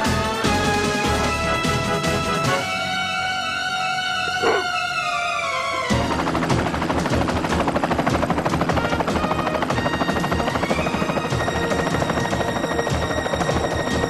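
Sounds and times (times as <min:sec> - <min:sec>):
helicopter rotor chop: 0:04.4 - 0:14.0.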